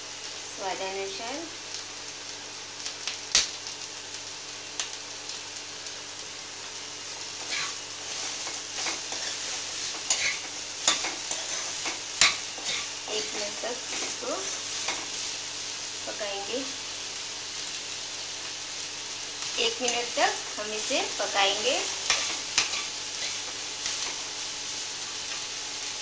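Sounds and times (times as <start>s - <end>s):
vegetables sizzling in a pan: 0.0s - 26.0s
spatula scraping and knocking pan: 7.4s - 12.9s.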